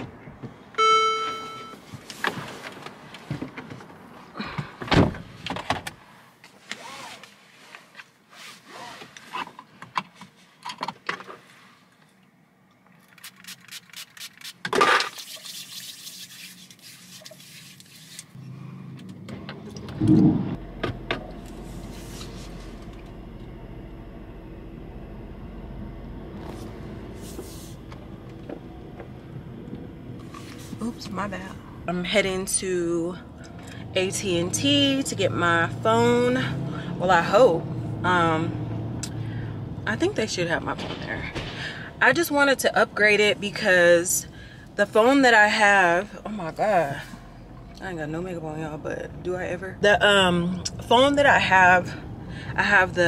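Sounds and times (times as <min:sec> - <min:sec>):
car running with low hum: 0:18.3 - 0:53.0
loud thump: 0:20.0 - 0:21.2.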